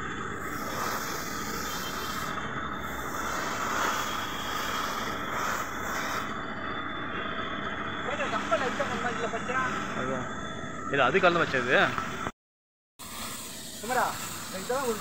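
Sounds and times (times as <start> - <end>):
spray gun hissing: 0.0 - 6.4, 13.0 - 15.0.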